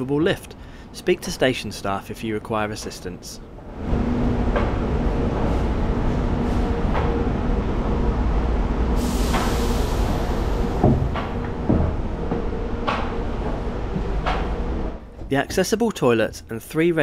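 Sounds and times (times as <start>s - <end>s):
electrical hum: 0.0s - 17.0s
train rumble: 2.8s - 15.8s
air hiss: 9.0s - 11.1s
knocks: 10.8s - 13.1s.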